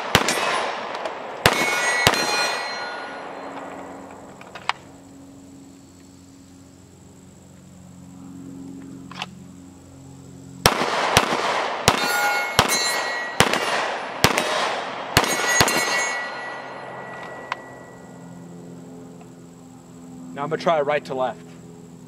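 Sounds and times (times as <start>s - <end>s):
pistol shots: 0.0s - 3.6s, 10.6s - 17.4s
steel targets ringing: 1.4s - 4.0s, 11.9s - 14.2s, 15.2s - 18.3s.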